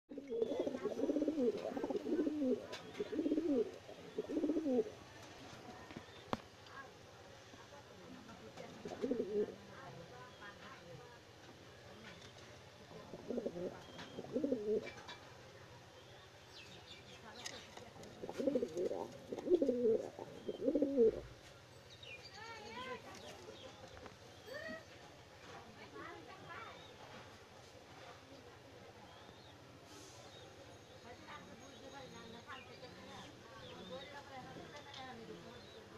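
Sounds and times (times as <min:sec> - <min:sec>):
pigeon cooing: 0:00.1 - 0:05.0, 0:08.7 - 0:09.6, 0:12.9 - 0:15.0, 0:18.2 - 0:21.3.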